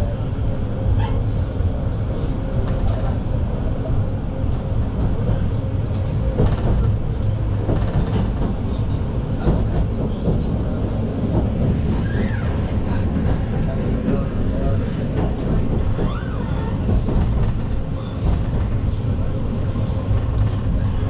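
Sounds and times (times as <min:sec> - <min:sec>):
tram wheels rumbling on rail: 0:00.0 - 0:21.0
tram knocks: 0:04.4 - 0:21.0.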